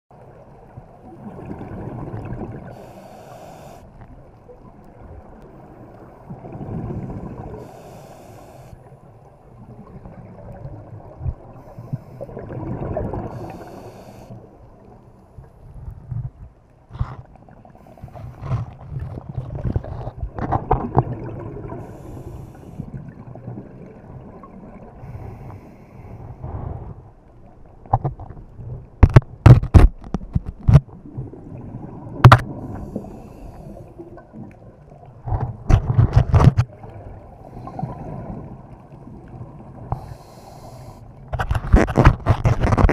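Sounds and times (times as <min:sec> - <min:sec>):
exhaled bubbles: 0:01.0 - 0:02.9, 0:12.2 - 0:14.0, 0:18.4 - 0:25.1
scuba regulator breathing: 0:02.6 - 0:04.0, 0:07.5 - 0:08.9, 0:11.6 - 0:12.4, 0:13.2 - 0:14.6, 0:21.8 - 0:23.0, 0:25.0 - 0:27.1, 0:32.6 - 0:34.1, 0:39.9 - 0:41.2.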